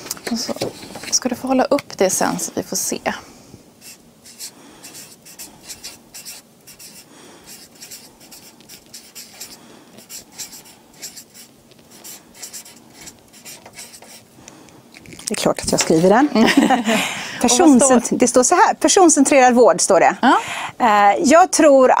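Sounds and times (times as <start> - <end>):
marker pen scratching on paper: 3.8 - 14.3.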